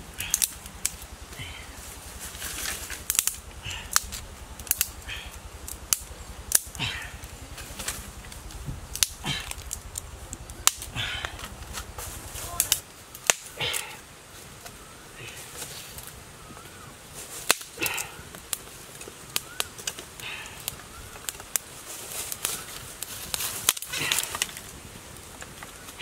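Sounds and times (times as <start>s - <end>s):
twigs and dry leaves rustling: 0.0s - 26.0s
dry sticks snapping: 0.1s - 26.0s.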